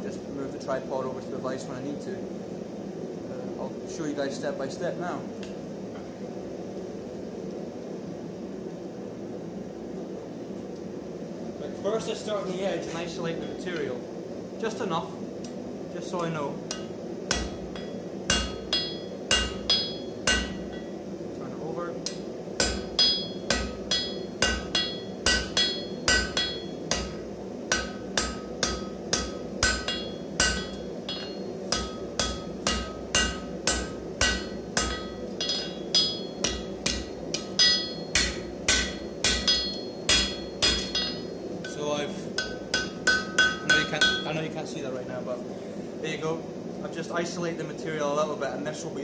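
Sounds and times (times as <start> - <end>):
steady low hum: 0.0 - 49.0
hammer ringing on anvil: 16.7 - 20.9, 22.1 - 41.8, 42.4 - 44.4.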